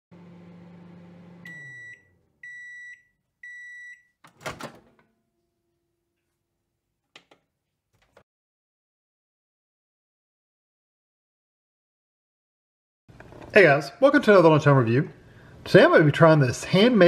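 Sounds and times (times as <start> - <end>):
microwave running hum: 0.1 - 6.0
microwave door latch clunk: 4.3 - 5.0.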